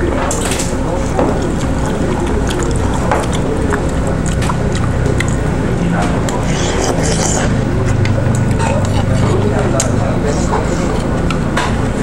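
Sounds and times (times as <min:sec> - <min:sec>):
restaurant background hum: 0:00.0 - 0:12.0
slurping noodles: 0:00.9 - 0:09.6.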